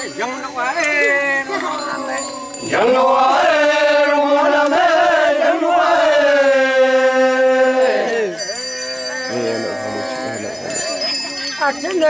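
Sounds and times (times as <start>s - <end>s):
men chanting in unison: 2.4s - 11.0s.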